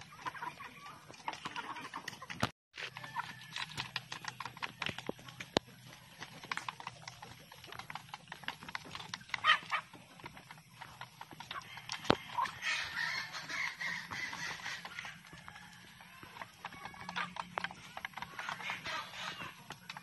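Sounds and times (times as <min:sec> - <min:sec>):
beaks tapping on bamboo: 0:02.4 - 0:12.5, 0:13.5 - 0:20.0
chicken call: 0:18.3 - 0:19.6.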